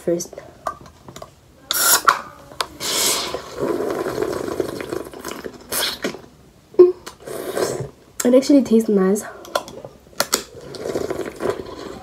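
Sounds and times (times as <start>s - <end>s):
person sipping soda: 1.7s - 6.3s, 7.0s - 8.0s, 9.4s - 12.0s.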